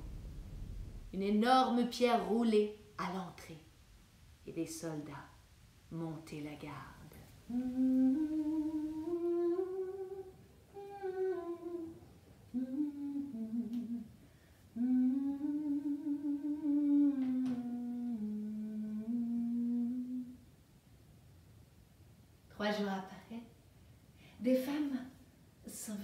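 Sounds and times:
woman humming: 0:07.5 - 0:14.1, 0:14.8 - 0:20.4.

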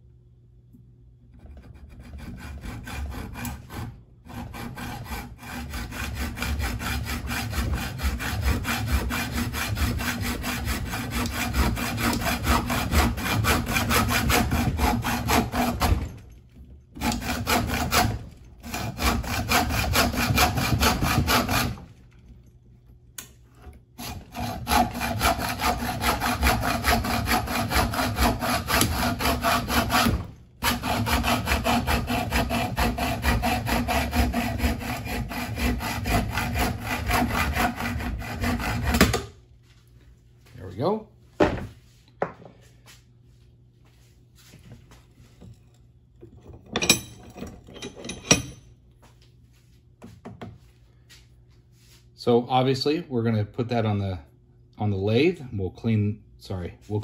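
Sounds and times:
hacksaw cutting metal: 0:01.7 - 0:16.2, 0:17.0 - 0:21.9, 0:24.0 - 0:39.3, 0:46.7 - 0:48.7.

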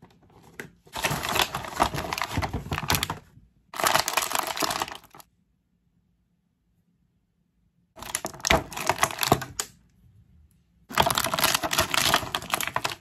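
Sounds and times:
plastic packaging crinkling: 0:00.9 - 0:05.2, 0:08.0 - 0:09.7, 0:10.9 - 0:13.0.

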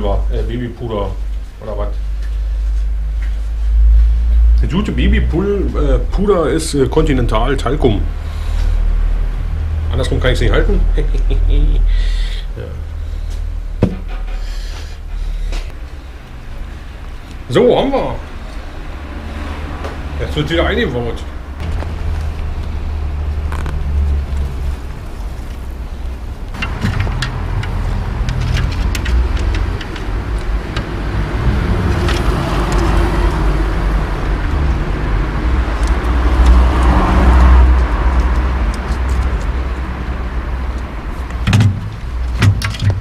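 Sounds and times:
sharp knocks: 0:13.8 - 0:14.3, 0:41.4 - 0:43.0
car engine rumble: 0:18.2 - 0:43.0
bicycle wheel and chain rattling: 0:26.5 - 0:33.8.

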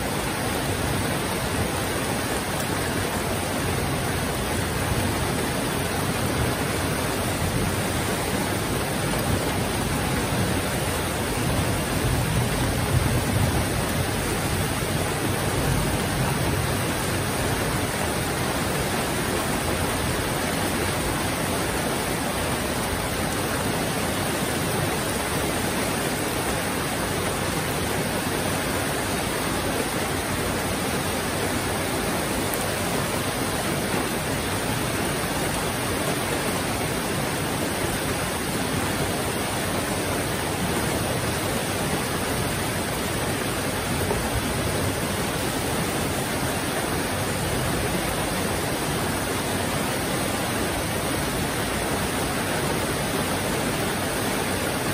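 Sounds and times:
heavy rain: 0:00.0 - 0:54.9.

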